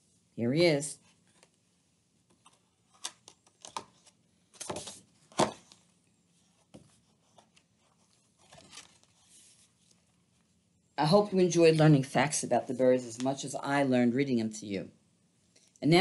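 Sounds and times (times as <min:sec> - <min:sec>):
book pages rustling: 0:01.0 - 0:10.6.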